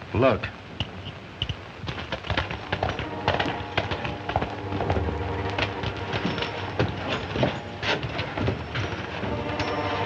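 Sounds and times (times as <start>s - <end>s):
horse hooves on dirt: 0.8s - 10.0s
boots on dirt: 1.8s - 9.2s.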